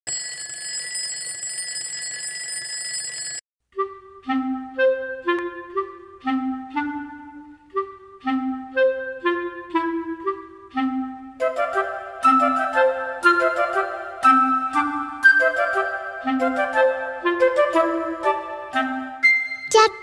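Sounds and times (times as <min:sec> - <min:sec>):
alarm clock bell ringing: 0:00.1 - 0:03.4
woodwind melody: 0:03.8 - 0:20.0.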